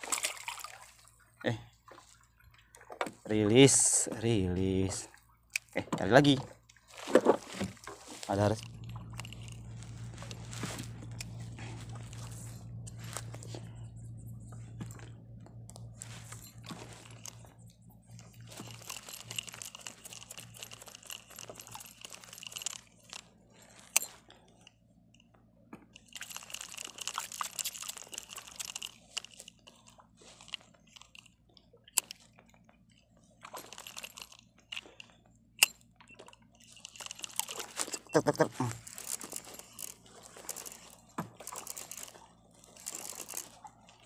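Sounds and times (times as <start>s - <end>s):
fishing reel cranking whir: 18.2s - 23.2s, 26.1s - 29.7s, 36.6s - 38.2s, 38.8s - 43.6s.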